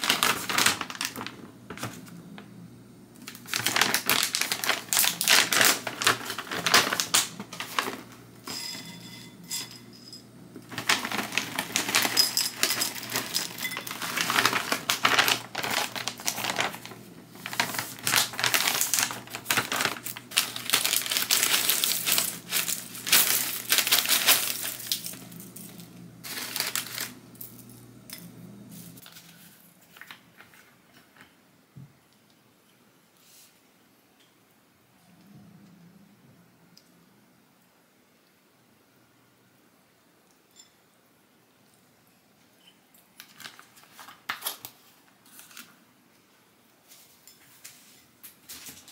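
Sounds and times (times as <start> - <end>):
plastic bag crinkling: 0.0 - 2.4, 3.2 - 8.5, 10.6 - 27.9, 43.2 - 45.8
cereal pouring into ceramic bowl: 17.5 - 27.6.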